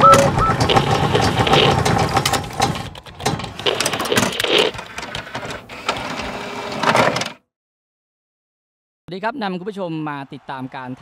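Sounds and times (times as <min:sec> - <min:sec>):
rapid clicks and ticks: 0:00.1 - 0:05.2.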